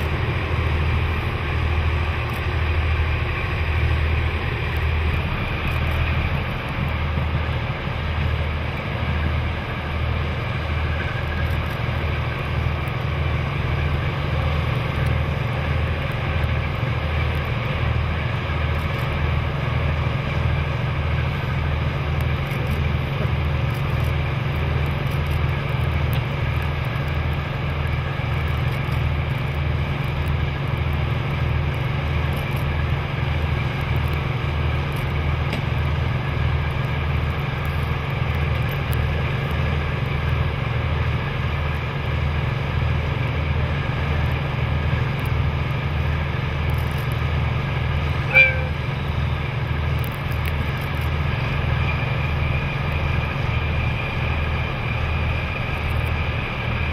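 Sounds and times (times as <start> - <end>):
diesel engine throbbing: 0.0 - 56.9
short high toot: 48.2 - 49.0.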